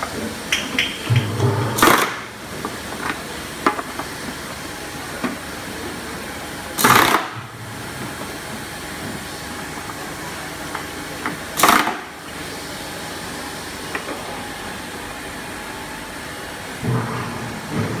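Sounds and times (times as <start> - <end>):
filling machine humming: 0.8 - 2.9.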